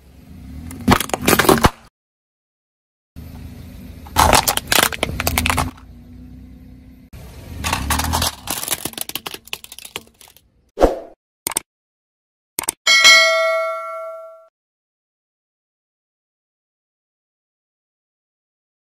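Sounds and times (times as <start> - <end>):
plastic cracking and crunching: 4.1 - 5.8, 7.7 - 10.4
tyre rumbling on asphalt: 4.1 - 5.8.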